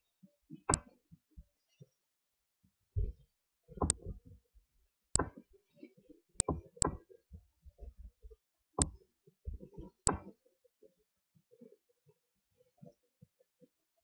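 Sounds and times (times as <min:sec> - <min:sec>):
mouse button clicking: 0:10.1 - 0:10.3.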